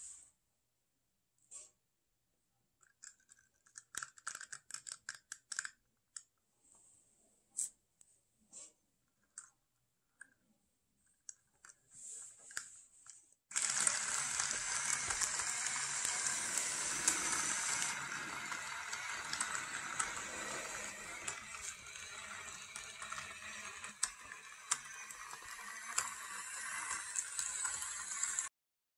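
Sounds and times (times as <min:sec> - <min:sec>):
toy tank motors and tracks rattling: 0:02.8 - 0:05.8, 0:13.5 - 0:28.5.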